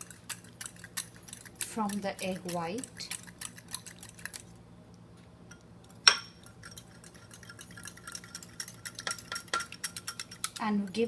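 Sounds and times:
utensil tapping a glass bowl: 9.0s - 10.6s.

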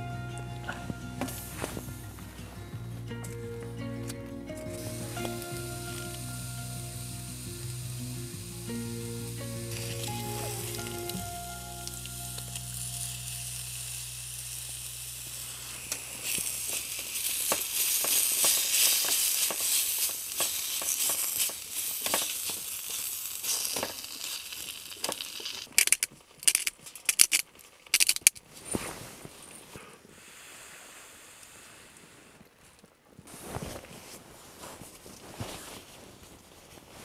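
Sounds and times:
food sizzling in a pan: 4.8s - 25.7s.

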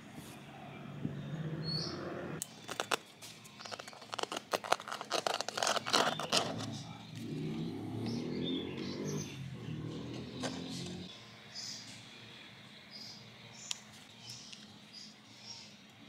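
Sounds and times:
plastic lid clicking and scraping: 2.4s - 6.8s, 10.2s - 11.0s.

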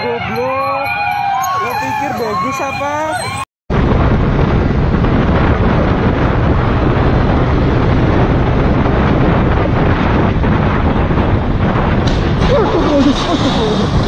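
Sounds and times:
wind buffeting microphone: 1.6s - 14.0s
motorcycle rumble: 3.7s - 14.0s.

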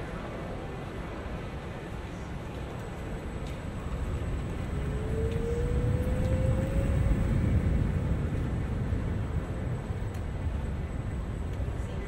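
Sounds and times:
city street traffic rumble: 0.0s - 12.0s
motor whine rising in pitch: 4.7s - 7.5s.

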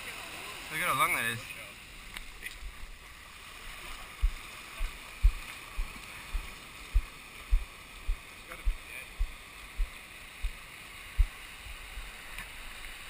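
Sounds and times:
small waves washing over sand: 0.0s - 13.0s
dull low thumps: 4.2s - 12.1s.

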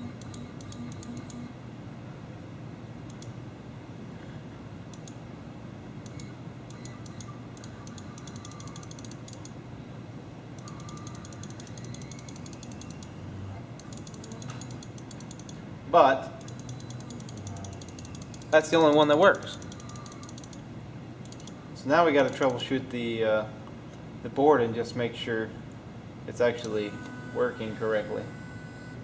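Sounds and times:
steady low hum: 0.0s - 29.0s
computer mouse clicks: 3.1s - 3.4s, 4.9s - 5.2s, 6.0s - 9.5s, 10.6s - 13.2s, 13.8s - 15.6s, 16.4s - 20.6s, 21.2s - 21.6s
stepper motor whines: 10.8s - 14.8s, 16.4s - 20.4s, 26.6s - 29.0s.

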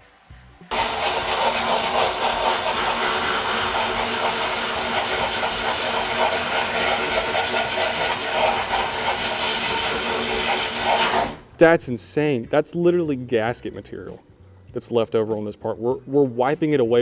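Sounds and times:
blasting gun spraying hiss: 0.7s - 11.4s.

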